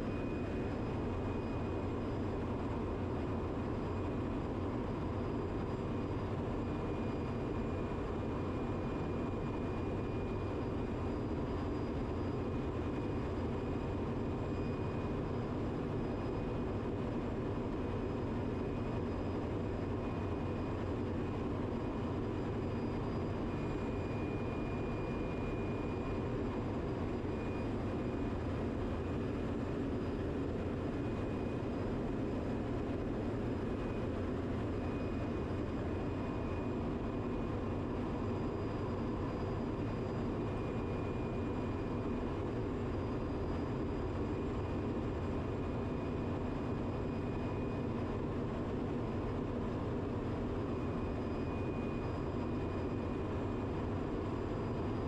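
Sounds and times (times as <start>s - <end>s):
faint thin whine: 0.0s - 55.0s.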